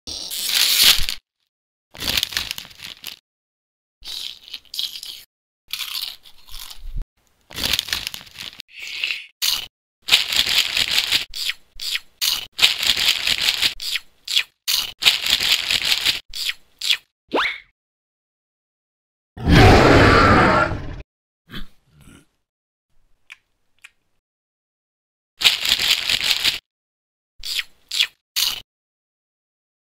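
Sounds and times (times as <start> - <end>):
chip bag crinkling: 2.0 - 3.2, 7.5 - 8.6, 9.5 - 11.3, 25.4 - 26.6
chips crunching: 2.0 - 3.2, 4.1 - 6.9, 7.5 - 8.6.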